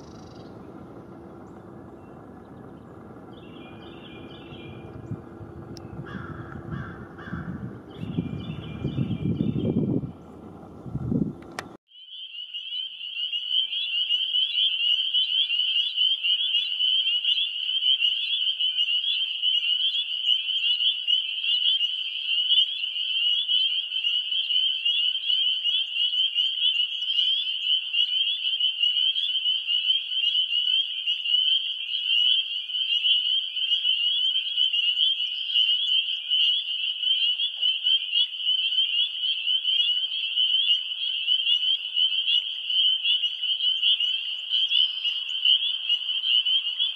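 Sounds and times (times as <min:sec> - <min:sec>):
frogs trilling in chorus: 0:00.0 - 0:09.8, 0:11.9 - 0:46.9.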